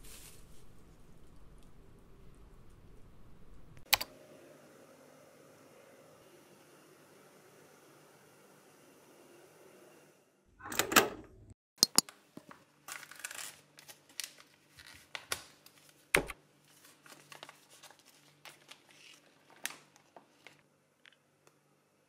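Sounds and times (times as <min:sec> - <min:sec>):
packaging bag crinkling: 0:00.0 - 0:00.8, 0:12.9 - 0:16.0, 0:16.7 - 0:20.6.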